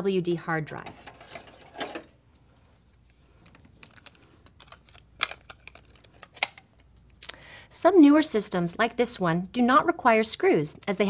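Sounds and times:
plastic clicks and rattles: 3.4s - 6.9s.

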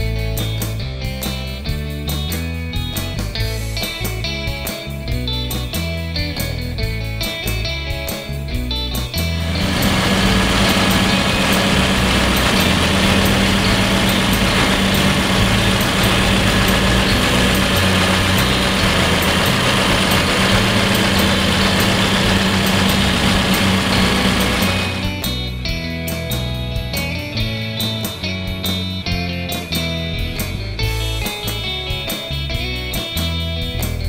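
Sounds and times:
car engine idling: 9.2s - 25.3s.

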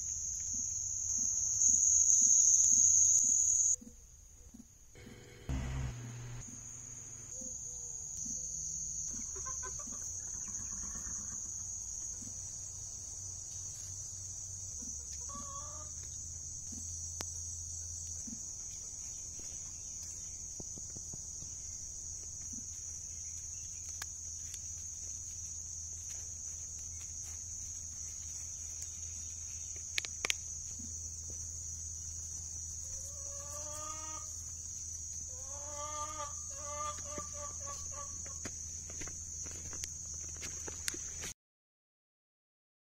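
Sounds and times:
high-pitched insect chorus: 0.0s - 3.8s, 6.4s - 41.2s
farm animal calls: 9.1s - 12.4s, 14.8s - 16.1s, 32.9s - 34.5s, 35.3s - 38.5s.

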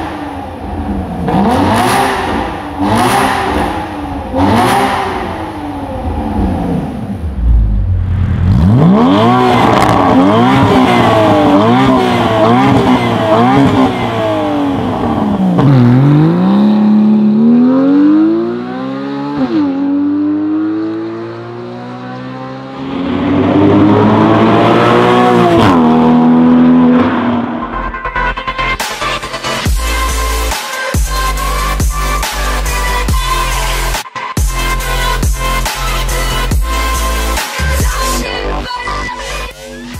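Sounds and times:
sports car engine revving: 0.0s - 27.9s
car accelerating at full throttle: 0.0s - 34.0s.

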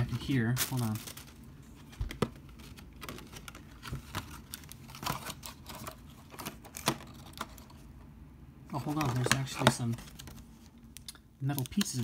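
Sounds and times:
hands handling cardboard packaging: 0.0s - 7.8s, 8.7s - 10.7s.

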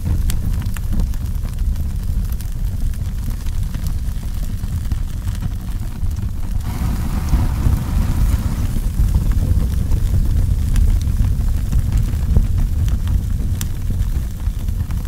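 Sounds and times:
fire roaring with crackles: 0.0s - 15.0s
bright rushing hiss: 6.5s - 9.7s.

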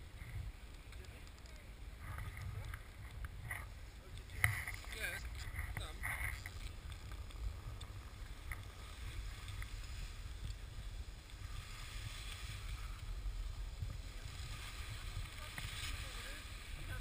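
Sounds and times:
skis scraping on snow: 0.0s - 17.0s.

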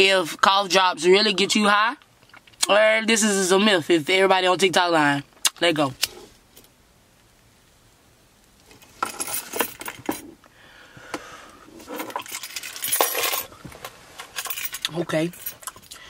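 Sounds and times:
person inhaling and blowing smoke: 10.5s - 11.9s.

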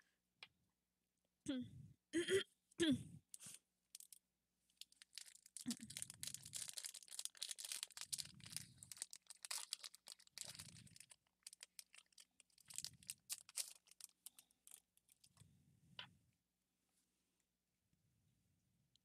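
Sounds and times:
foil wrapper crinkling: 3.4s - 4.2s, 4.8s - 15.3s.

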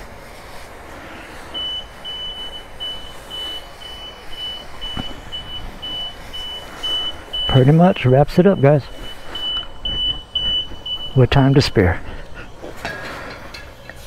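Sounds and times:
pressure washer spraying water: 0.0s - 14.0s
high electronic beeps: 1.6s - 11.8s.

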